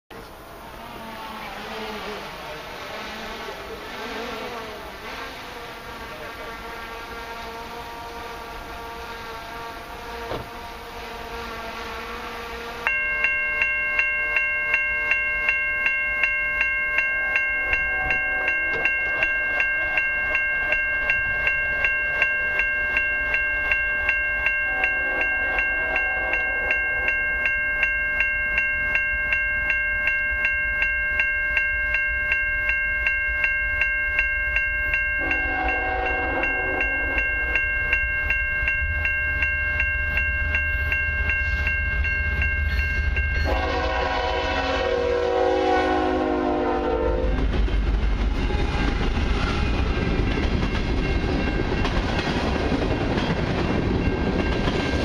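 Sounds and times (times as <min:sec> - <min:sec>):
crossing warning bell ringing: 0:00.2 - 0:55.0
train horn blasts: 0:00.6 - 0:13.0, 0:17.7 - 0:18.9, 0:24.6 - 0:26.8, 0:35.2 - 0:37.6, 0:43.4 - 0:47.5
diesel locomotive rumble: 0:38.7 - 0:55.0.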